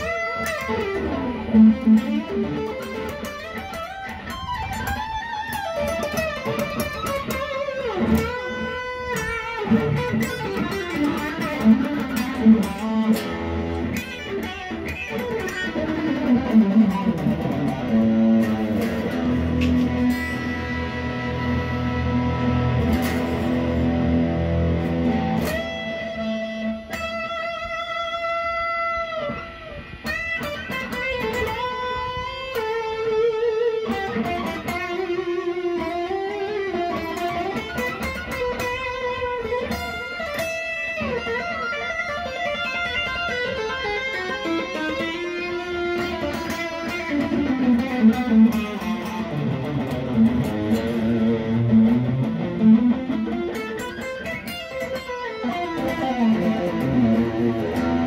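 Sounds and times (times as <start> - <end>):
electric guitar lead phrases: 0.0 - 58.0.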